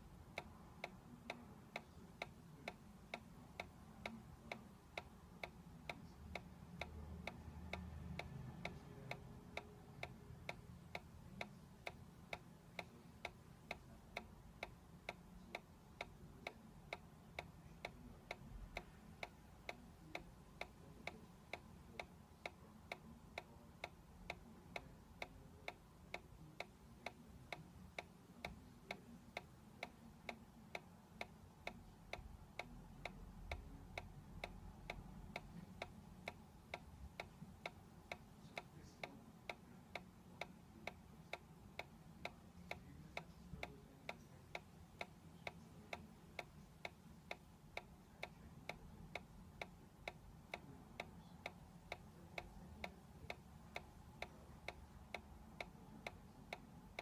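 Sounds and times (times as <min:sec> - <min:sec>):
faint room noise: 0:00.0 - 0:57.0.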